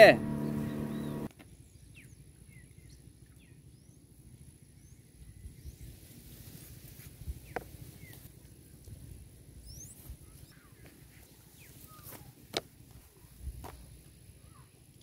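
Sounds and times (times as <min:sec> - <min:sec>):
bird chirps: 0:00.3 - 0:01.3.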